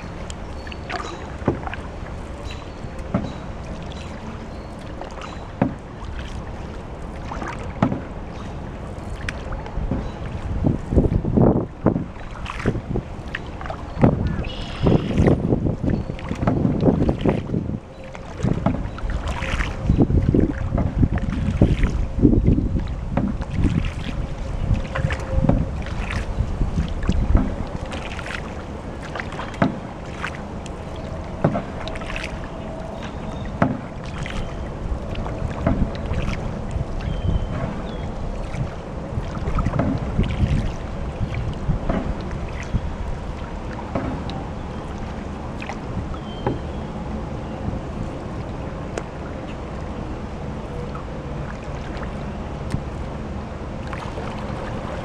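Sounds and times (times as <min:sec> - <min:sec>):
paddle strokes splashing: 0:00.0 - 0:55.0
wind rumble on microphone: 0:00.0 - 0:55.0
knocks against canoe hull: 0:03.1 - 0:03.4, 0:05.6 - 0:05.8, 0:07.5 - 0:08.1, 0:14.0 - 0:15.4, 0:16.2 - 0:17.5, 0:18.4 - 0:18.9, 0:23.1 - 0:23.9, 0:27.0 - 0:27.6, 0:29.5 - 0:29.9, 0:31.4 - 0:32.0, 0:33.6 - 0:33.9, 0:35.6 - 0:36.2, 0:39.6 - 0:40.6, 0:41.8 - 0:42.2, 0:43.9 - 0:44.3.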